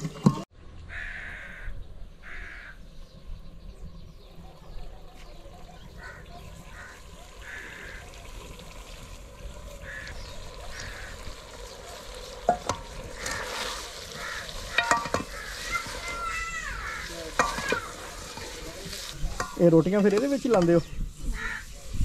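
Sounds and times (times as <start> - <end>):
food sizzling: 5.8 - 22.0
metal spatula scraping pot: 10.7 - 21.7
spatula clinking against pot: 14.7 - 15.4, 17.3 - 18.5.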